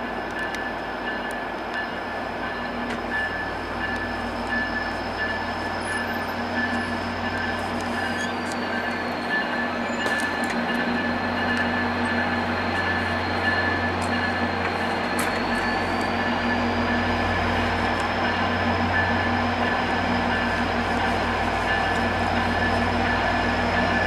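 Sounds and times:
diesel locomotives running: 0.0s - 24.0s
thin high squeal: 8.0s - 11.4s.

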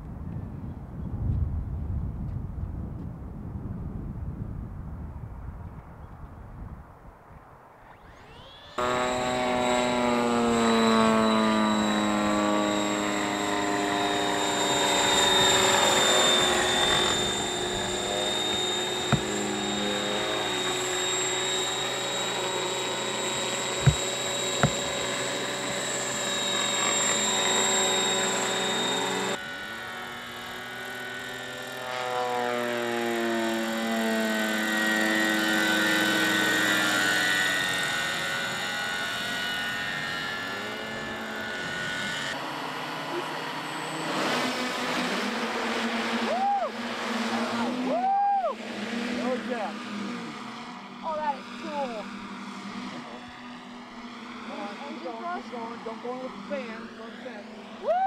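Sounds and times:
model helicopters droning: 7.5s - 58.0s
thin high whine: 7.8s - 31.1s.

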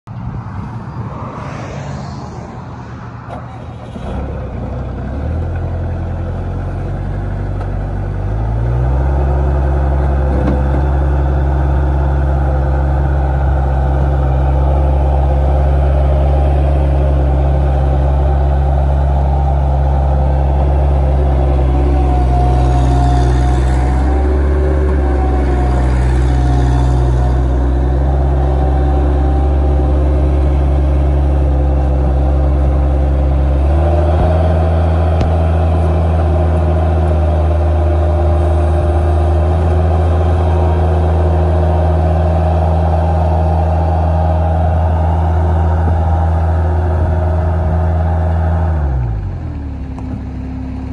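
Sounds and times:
diesel engine running: 0.1s - 50.9s.

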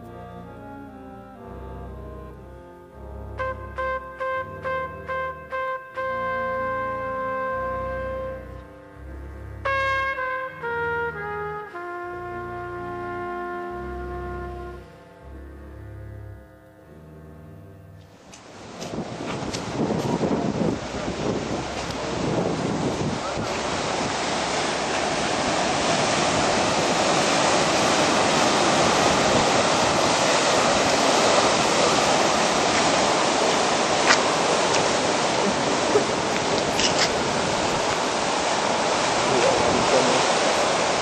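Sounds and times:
surf breaking over rocks: 18.4s - 41.0s.

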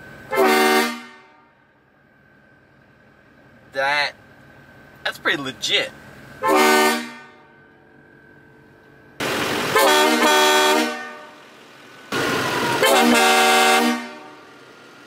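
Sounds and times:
train horn blasts: 0.3s - 1.7s, 6.4s - 7.8s, 9.7s - 11.4s, 12.6s - 14.5s.

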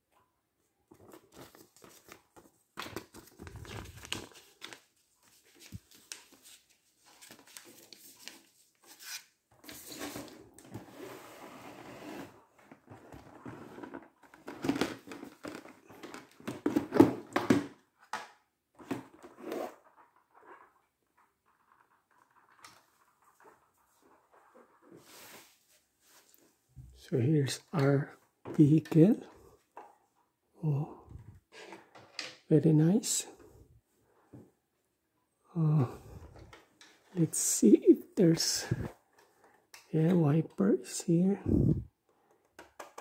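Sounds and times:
cardboard rustling and crinkling: 0.9s - 11.1s.

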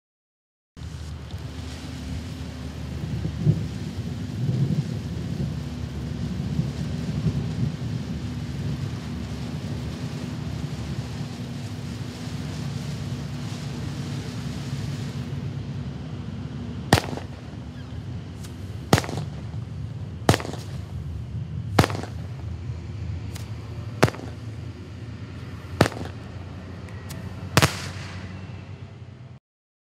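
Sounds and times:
firework hiss: 0.8s - 29.3s
firework sharp reports: 0.8s - 29.4s
faint firework pops: 16.9s - 21.1s, 21.7s - 22.6s, 23.3s - 28.3s.

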